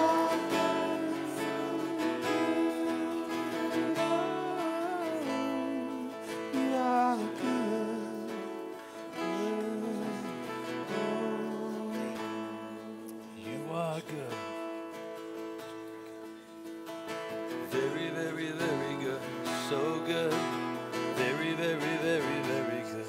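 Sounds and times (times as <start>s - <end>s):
band playing worship music: 0.0s - 13.2s
gliding melody line: 0.0s - 13.4s
acoustic guitar strumming: 0.0s - 23.0s.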